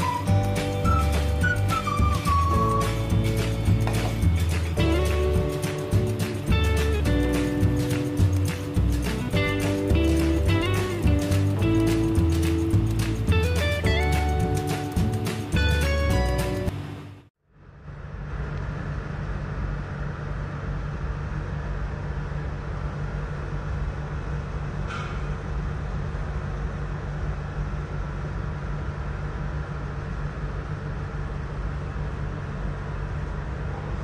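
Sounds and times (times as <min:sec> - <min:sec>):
low mechanical hum and hiss: 0:16.7 - 0:34.0.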